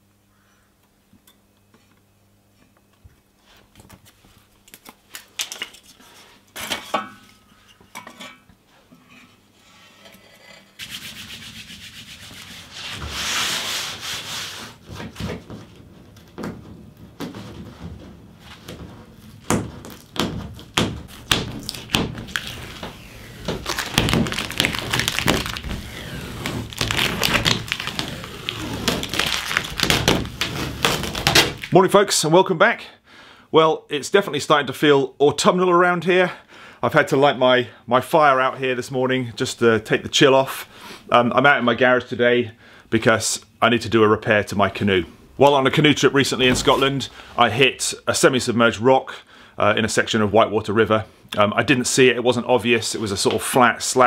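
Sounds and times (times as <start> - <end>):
hands rubbing a hull: 10.8 - 31.7
tape ripping off: 17.2 - 31.8.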